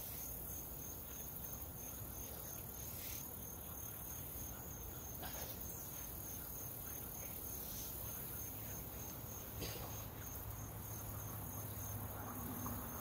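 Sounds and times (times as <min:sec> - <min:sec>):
faint background hiss: 0:00.0 - 0:13.0
insects trilling: 0:00.0 - 0:13.0.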